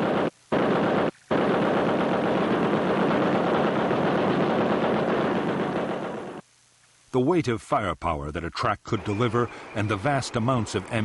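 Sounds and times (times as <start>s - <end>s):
heavy machine gun firing: 0.0s - 6.4s.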